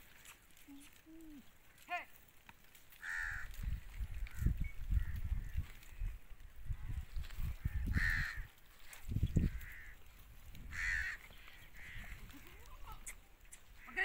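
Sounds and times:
crow cawing: 3.0s - 3.7s, 7.6s - 8.5s, 9.4s - 10.0s, 10.7s - 12.3s.

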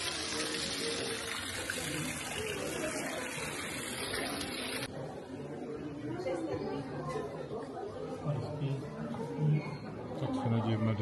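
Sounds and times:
running water rushing: 0.0s - 4.9s
faint voices: 0.0s - 11.0s.

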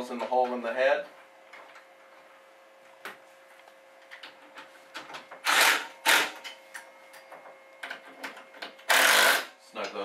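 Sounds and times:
hand ratchet clicking: 8.8s - 9.5s.

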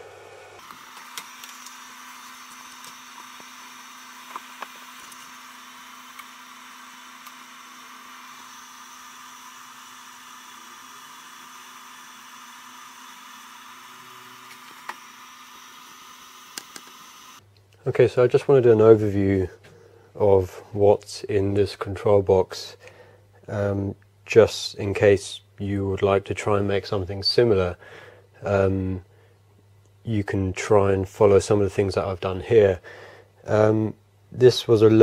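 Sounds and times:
cooling fans whirring: 0.0s - 20.5s.

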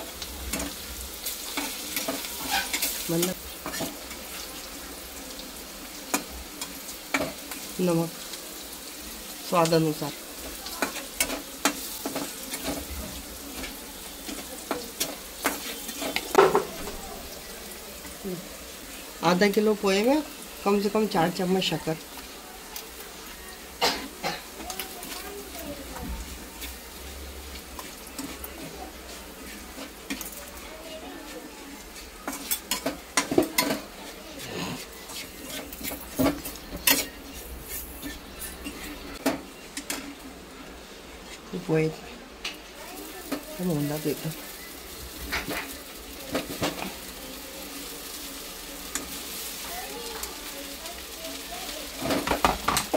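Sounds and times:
food sizzling: 0.0s - 52.9s
metal spatula scraping pan: 1.5s - 4.4s, 13.6s - 16.7s, 31.9s - 39.0s.

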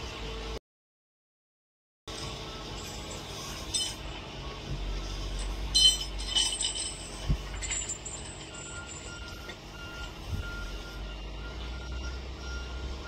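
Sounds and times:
low machinery rumble: 2.1s - 13.0s
reversing alarm beeping: 2.2s - 3.6s, 8.5s - 13.0s.

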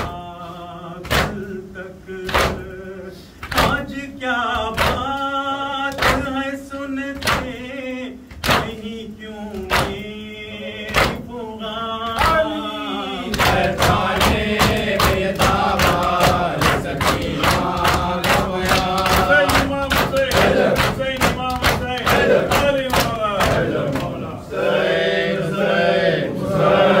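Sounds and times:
men chanting in unison: 0.0s - 27.0s
hands slapping chests: 5.9s - 6.4s, 8.3s - 8.8s, 9.6s - 10.0s, 13.3s - 24.2s.

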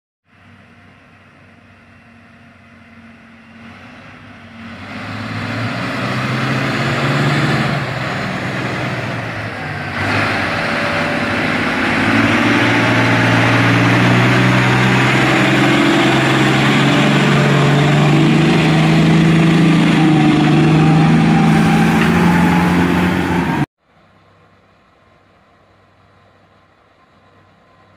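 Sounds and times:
truck diesel engine: 0.3s - 27.9s
whine rising in pitch: 6.1s - 23.7s.

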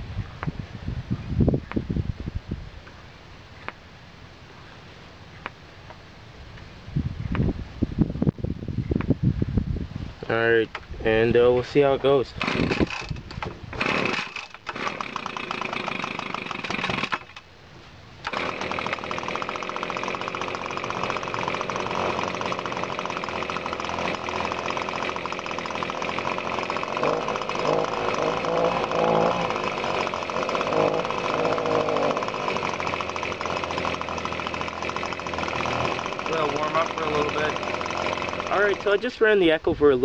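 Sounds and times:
leaf blower engine running: 12.2s - 17.4s, 18.2s - 39.3s.

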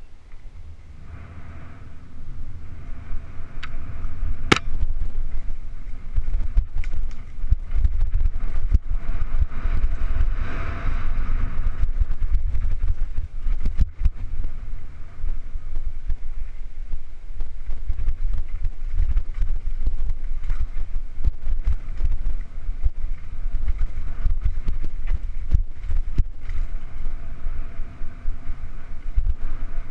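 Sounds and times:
wind buffeting microphone: 0.0s - 29.9s.

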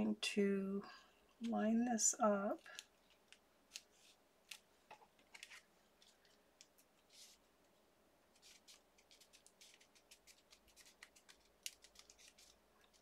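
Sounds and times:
cardstock rustling and ticking: 8.4s - 13.0s.

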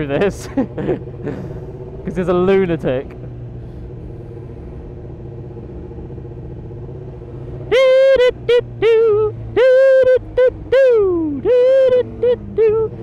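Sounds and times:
motorcycle engine running: 0.0s - 13.0s
man humming loud notes: 7.7s - 13.0s.

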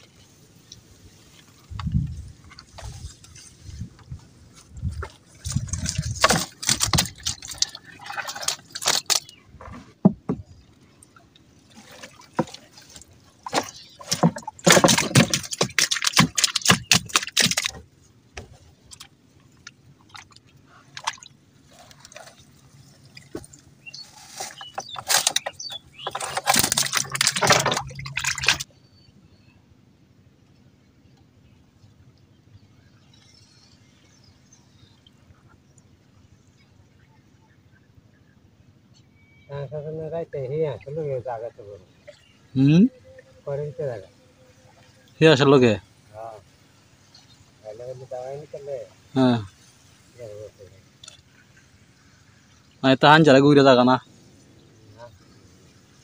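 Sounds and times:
fish splashing and slapping: 2.3s - 28.7s
water dripping: 5.0s - 9.4s, 10.3s - 28.7s.

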